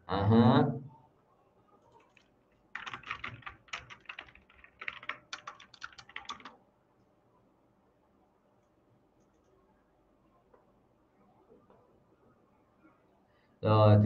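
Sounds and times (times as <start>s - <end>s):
computer keyboard typing: 1.9s - 6.6s.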